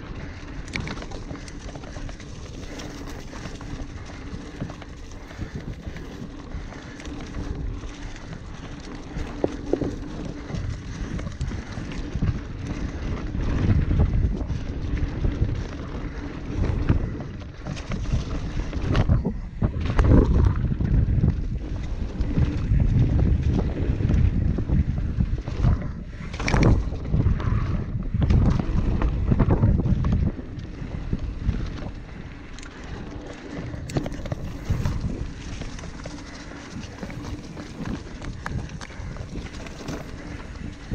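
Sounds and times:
mountain bike rumbling on dirt trail: 0.0s - 40.9s
wind buffeting microphone: 0.0s - 40.9s.

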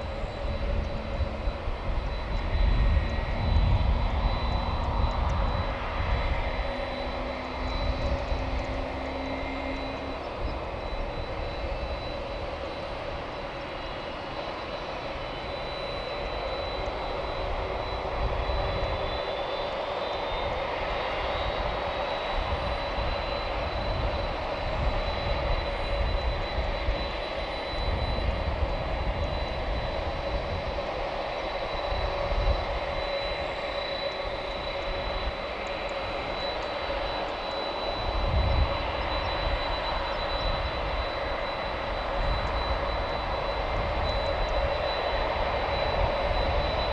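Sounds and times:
low hum: 0.0s - 19.3s
jet engines idling: 0.0s - 46.9s.

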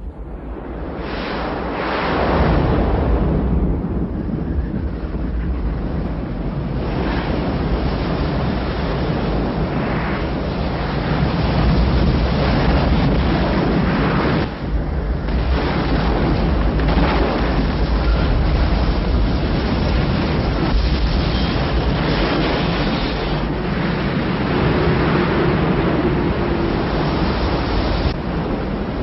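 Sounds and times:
deep rumble: 0.0s - 29.0s
rush of water: 6.8s - 29.0s.

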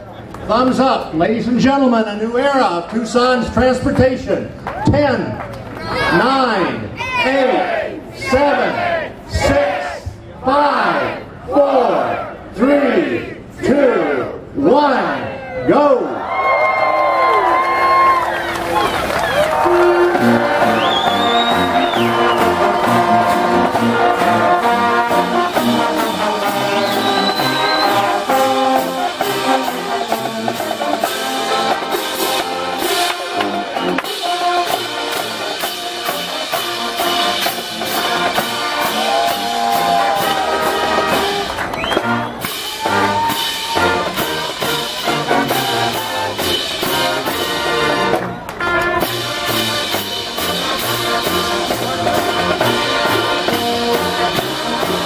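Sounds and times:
marching band playing: 17.6s - 55.0s
steady drum beat: 19.4s - 48.2s, 49.0s - 55.0s.

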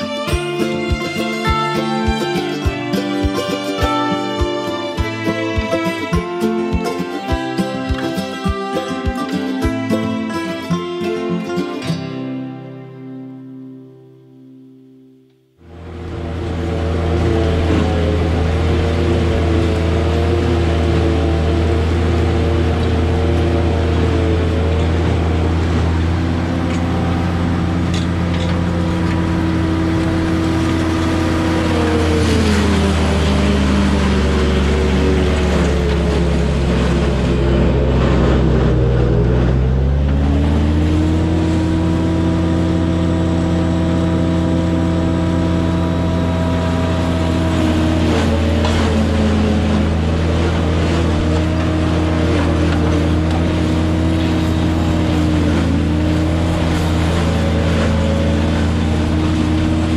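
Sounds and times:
motor running: 15.7s - 59.9s.

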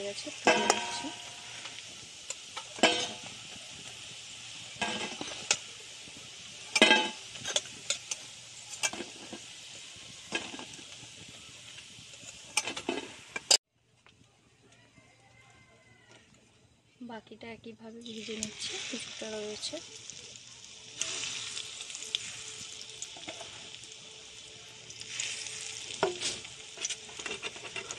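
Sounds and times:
fritters sizzling in hot oil: 0.0s - 13.7s, 17.0s - 27.9s
metal spatula scraping pan: 0.1s - 5.7s, 6.7s - 11.3s, 12.0s - 13.6s, 23.2s - 23.8s, 25.1s - 27.9s.

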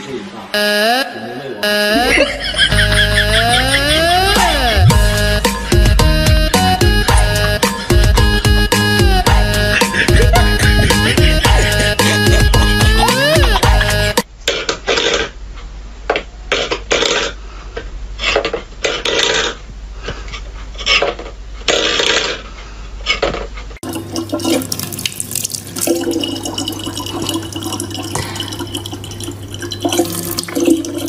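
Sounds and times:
water running from tap: 23.8s - 31.0s.

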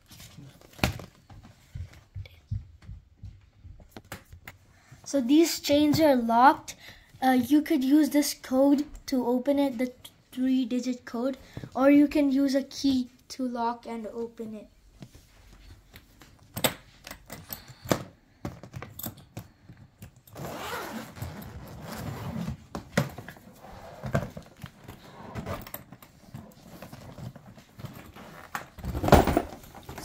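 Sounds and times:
zipper pulls clicking and jangling: 18.7s - 22.6s, 23.2s - 30.0s
zipper rasping open: 20.2s - 22.7s, 23.3s - 28.6s.

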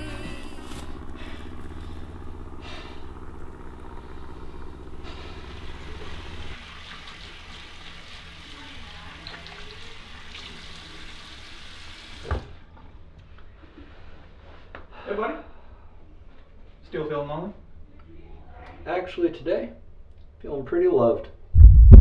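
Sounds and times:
low steady drone: 0.0s - 6.6s.

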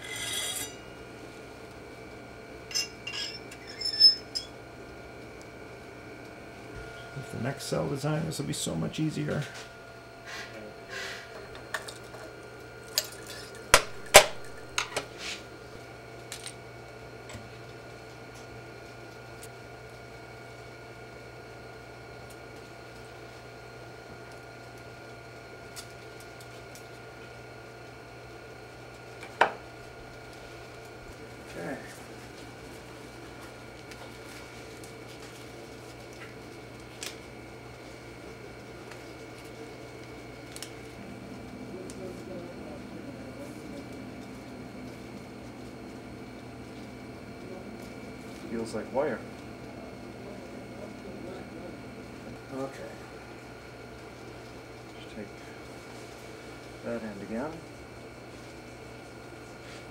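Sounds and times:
faint high whine: 0.0s - 1.0s, 2.7s - 4.6s, 6.4s - 11.9s
faint steady hum: 0.0s - 59.9s
metal tools clinking: 2.7s - 4.5s.

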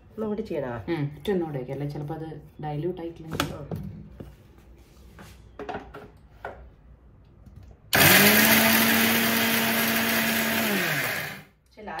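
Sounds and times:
mixer grinder grinding: 7.9s - 11.5s.

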